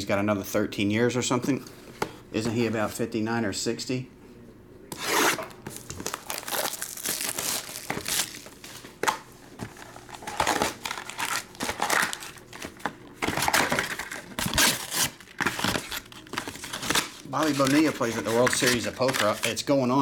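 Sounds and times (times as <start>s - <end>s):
plastic wrap tearing: 5.0s - 8.6s, 9.9s - 12.6s, 13.3s - 19.6s
foil packs crinkling: 5.7s - 8.9s, 9.7s - 19.8s.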